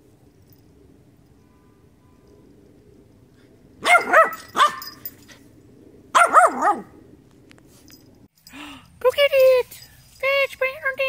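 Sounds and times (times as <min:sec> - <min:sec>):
puppy barking: 0:03.8 - 0:05.0, 0:06.1 - 0:06.9.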